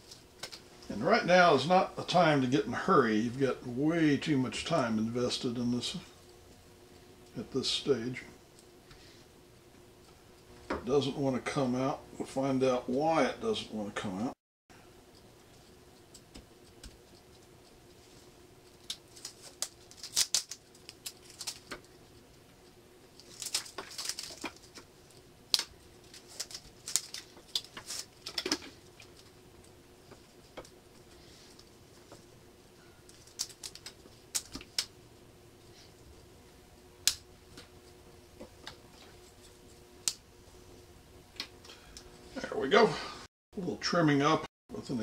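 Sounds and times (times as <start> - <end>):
faint steady hum: 0.0 - 45.0
tape and paper crackling: 18.6 - 22.4, 23.1 - 32.2, 33.1 - 34.9.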